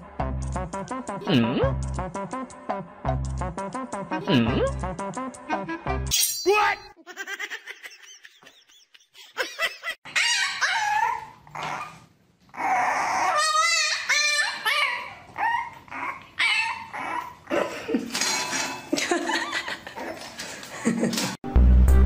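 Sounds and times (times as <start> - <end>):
dogs whining and yipping: 10.1 - 17.5.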